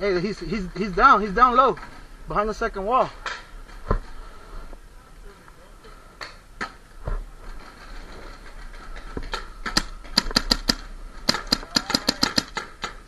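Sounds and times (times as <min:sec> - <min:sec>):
paintball marker firing: 0:09.1 - 0:13.0.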